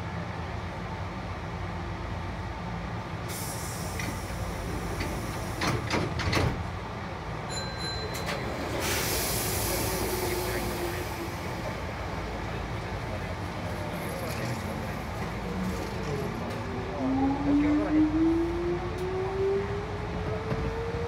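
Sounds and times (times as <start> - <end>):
train low rumble: 0.0 - 21.0
compressed air hiss: 3.3 - 5.9, 8.8 - 11.4.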